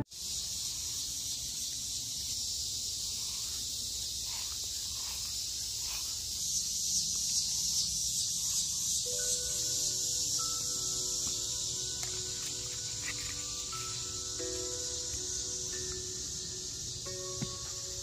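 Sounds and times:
insects chorus: 0:00.0 - 0:18.0.

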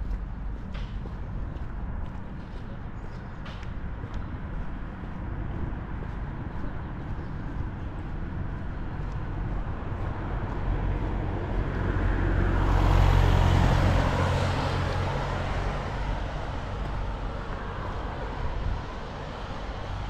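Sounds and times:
background traffic: 0:00.0 - 0:20.0
vehicle passing by: 0:09.0 - 0:20.0.

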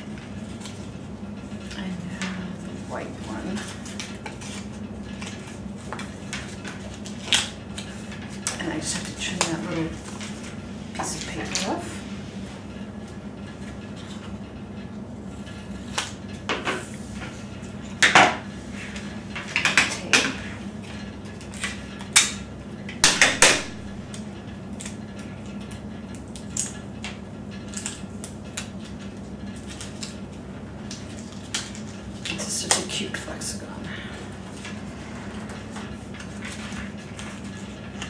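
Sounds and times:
paper crackling and rustling: 0:01.6 - 0:12.5, 0:23.6 - 0:33.4, 0:34.2 - 0:38.0.

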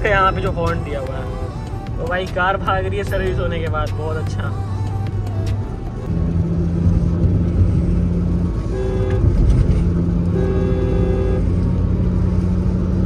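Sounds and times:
car driving drone: 0:00.0 - 0:13.0
two-tone car horn: 0:08.6 - 0:11.7.

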